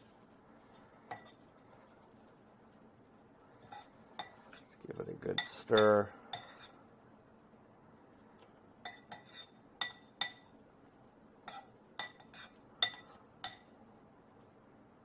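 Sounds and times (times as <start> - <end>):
fork clinking against glass bowl: 8.8 - 10.5, 11.4 - 13.7.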